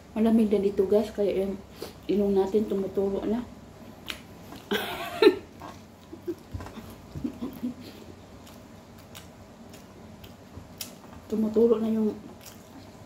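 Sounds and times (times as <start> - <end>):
soft chewing and mouth clicks: 3.8 - 4.8, 5.5 - 13.0.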